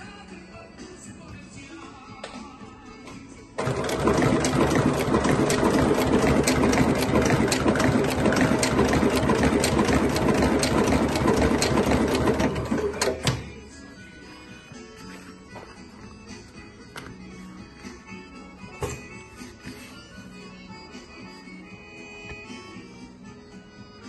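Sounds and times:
sewing machine stitching: 0:03.6 - 0:13.5.

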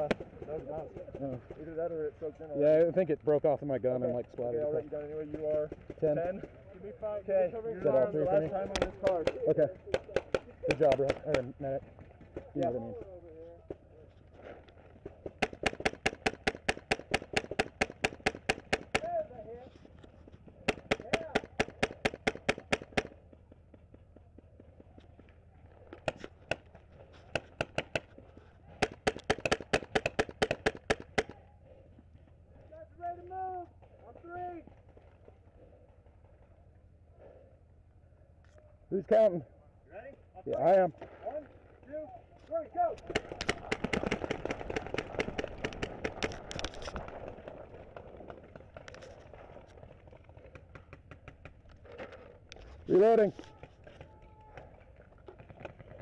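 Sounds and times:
paintball marker shots: 0:00.0 - 0:01.2, 0:08.5 - 0:11.5, 0:15.0 - 0:19.2, 0:20.4 - 0:23.2, 0:24.8 - 0:31.4, 0:43.0 - 0:47.3
faint rapid popping: 0:43.0 - 0:56.0.

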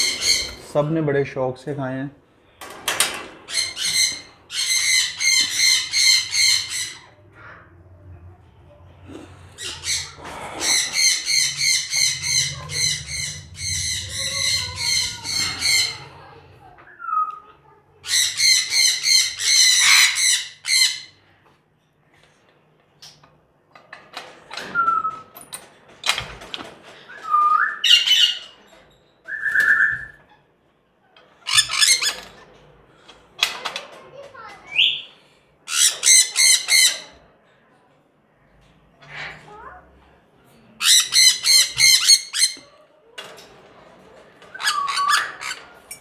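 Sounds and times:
parrots screeching: 0:00.0 - 0:00.6, 0:03.5 - 0:07.6, 0:09.6 - 0:16.4, 0:18.0 - 0:21.2, 0:27.3 - 0:28.6, 0:31.4 - 0:32.4, 0:35.7 - 0:37.2, 0:40.8 - 0:42.7, 0:44.5 - 0:45.8.

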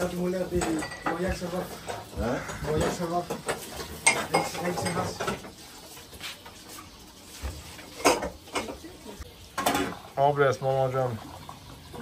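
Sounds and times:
kitchenware clinking and knocking: 0:00.0 - 0:05.6, 0:07.4 - 0:10.1.

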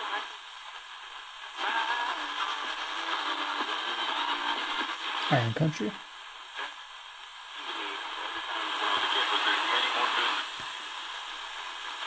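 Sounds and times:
radio static hiss: 0:00.0 - 0:12.0
faint radio voice: 0:05.2 - 0:06.0, 0:07.8 - 0:10.5.

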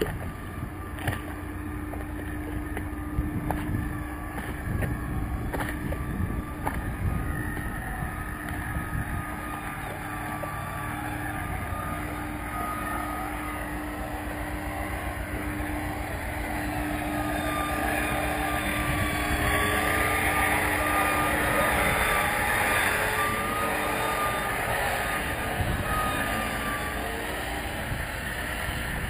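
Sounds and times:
wind rumbling on microphone: 0:00.0 - 0:12.5, 0:13.4 - 0:29.0
machinery hum: 0:00.0 - 0:29.0.

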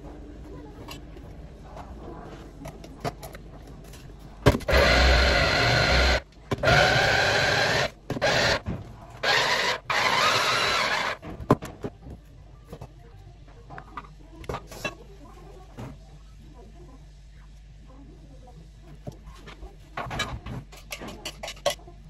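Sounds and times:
electric food chopper pulsing: 0:04.7 - 0:08.6, 0:09.2 - 0:11.2.

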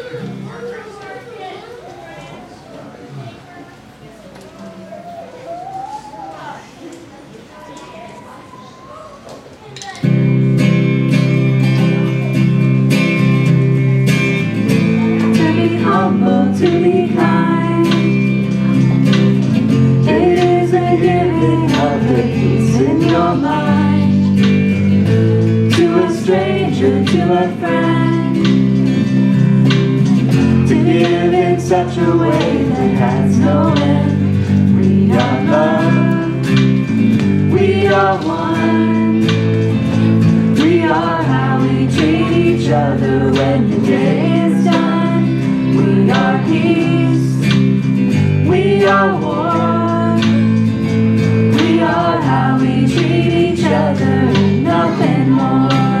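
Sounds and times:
strummed guitars: 0:10.0 - 0:56.0
woman singing: 0:15.2 - 0:18.2, 0:20.0 - 0:24.3, 0:25.7 - 0:28.6, 0:30.7 - 0:36.6, 0:40.6 - 0:47.4, 0:51.6 - 0:56.0.

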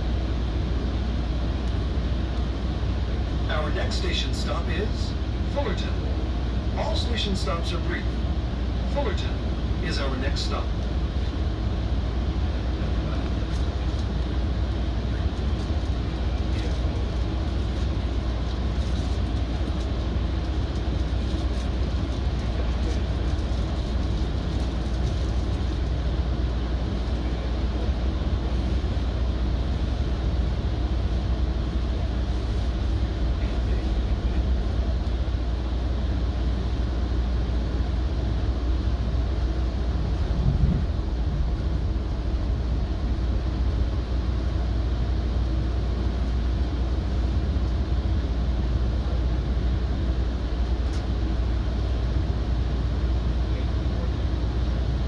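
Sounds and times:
train rumble from inside car: 0:00.0 - 0:55.0
low bump: 0:40.3 - 0:41.6.

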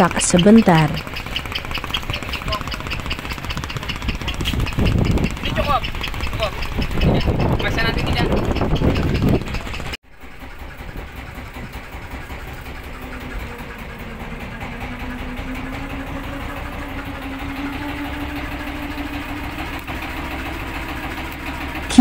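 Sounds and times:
boat engine idling: 0:00.0 - 0:22.0
faint rising hum: 0:10.3 - 0:22.0.

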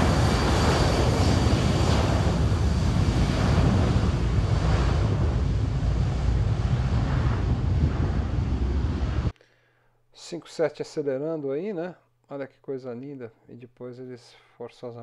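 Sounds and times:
jet engines at takeoff thrust: 0:00.0 - 0:09.3
wind buffeting microphone: 0:00.0 - 0:09.3.

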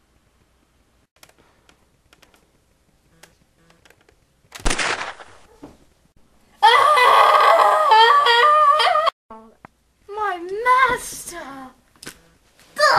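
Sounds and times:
loud shot-like burst: 0:04.6 - 0:05.5
high wavering wail: 0:06.6 - 0:09.2.

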